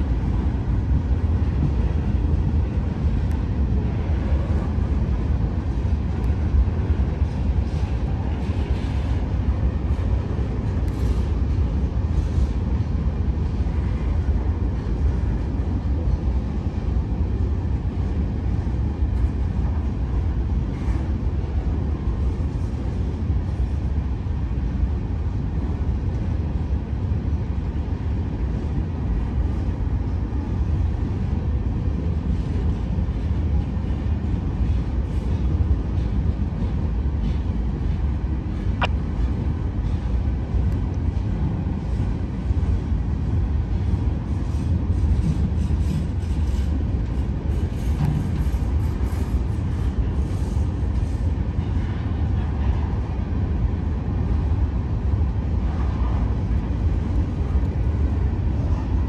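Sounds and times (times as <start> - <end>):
train wheels rumbling on rail: 0.0 - 59.0.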